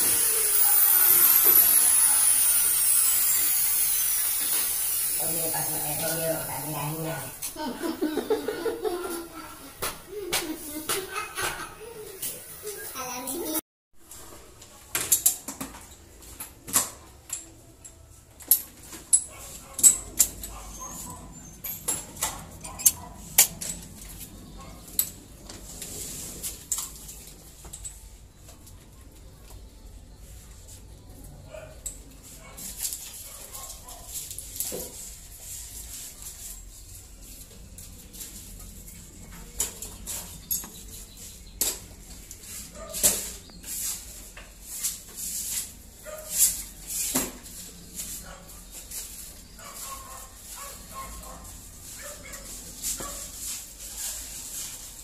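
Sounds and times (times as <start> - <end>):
scrapes and rustles on door: 18.7 - 28.1, 31.5 - 55.0.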